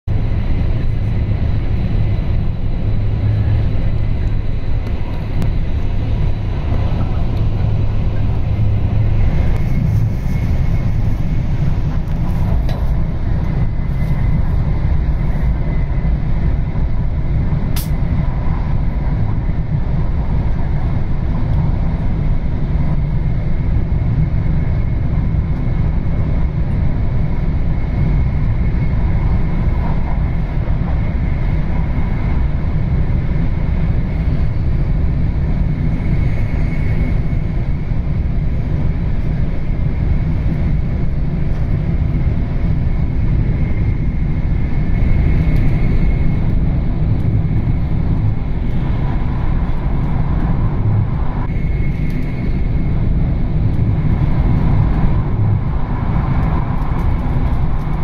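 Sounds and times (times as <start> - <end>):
train wheels rumbling on track: 0.1 - 58.0
sharp click: 17.8 - 18.0.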